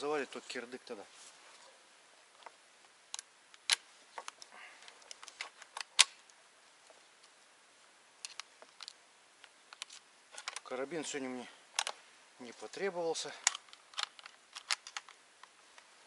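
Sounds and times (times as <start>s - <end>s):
rifle action metallic clicks: 13.4s - 15.2s.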